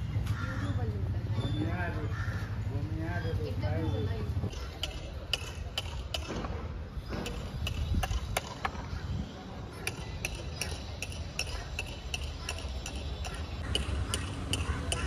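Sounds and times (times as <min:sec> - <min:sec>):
hammer tapping on metal: 0:07.1 - 0:08.8, 0:09.8 - 0:15.0.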